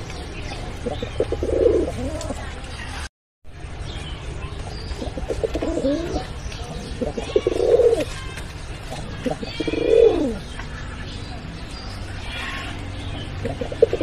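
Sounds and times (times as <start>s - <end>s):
pigeons cooing: 0.7s - 2.4s, 5.0s - 8.2s, 8.9s - 10.5s, 13.3s - 14.0s.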